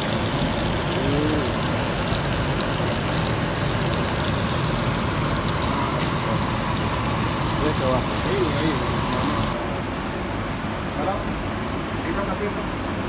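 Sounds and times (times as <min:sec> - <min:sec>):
steak sizzling in butter: 0:00.0 - 0:09.6.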